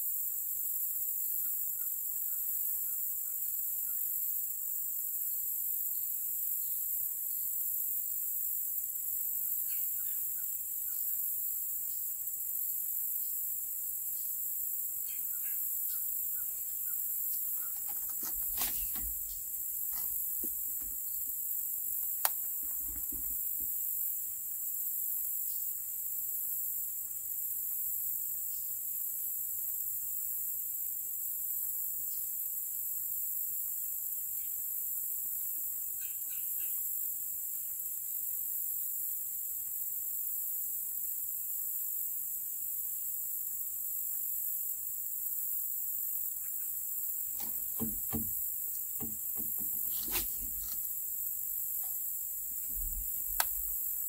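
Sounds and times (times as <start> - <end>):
crickets and insects chorus: 0.0 - 54.0
low knocks and clicks: 47.4 - 50.8.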